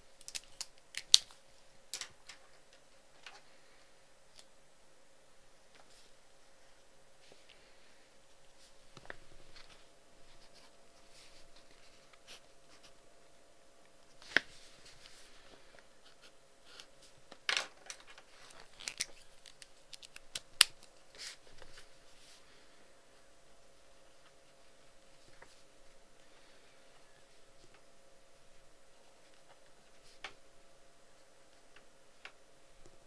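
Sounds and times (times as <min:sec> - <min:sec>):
faint steady hum: 0:00.0 - 0:33.0
handling scratching and rustling: 0:14.1 - 0:22.4.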